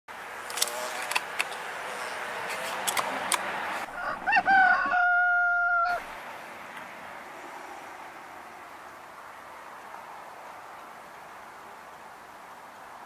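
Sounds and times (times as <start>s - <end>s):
outdoor background hiss: 0.1s - 13.0s
rooster crowing: 3.8s - 6.1s.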